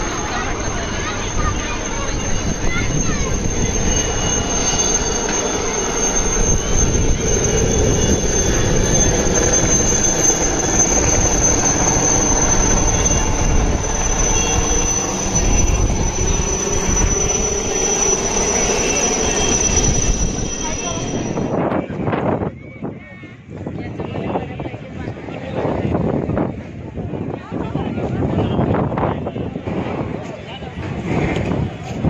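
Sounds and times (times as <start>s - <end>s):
helicopter turbine whine: 0.0s - 22.5s
helicopter rotor rumble: 0.0s - 32.0s.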